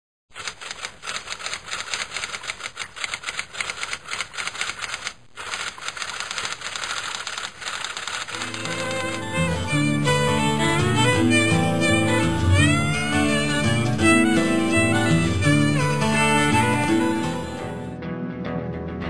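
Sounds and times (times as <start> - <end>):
typewriter keys clicking: 0.4 - 9.4
string music: 8.4 - 19.0.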